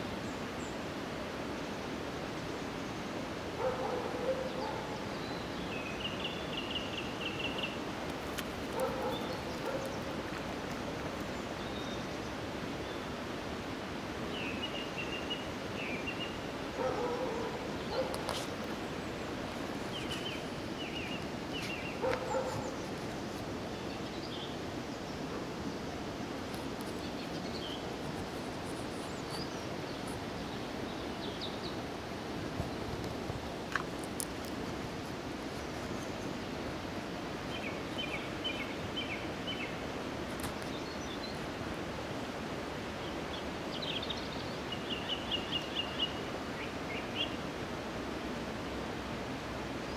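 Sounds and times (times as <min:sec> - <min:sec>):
steady outdoor hiss: 0:00.0 - 0:49.9
dogs barking: 0:03.6 - 0:05.0, 0:08.7 - 0:10.2, 0:16.8 - 0:18.3, 0:22.0 - 0:22.8.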